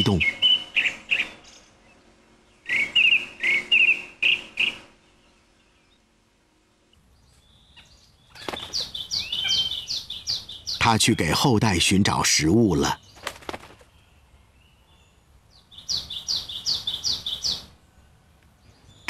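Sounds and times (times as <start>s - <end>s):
bird chattering calls: 2.6s - 5.0s, 7.8s - 11.0s, 15.7s - 17.7s.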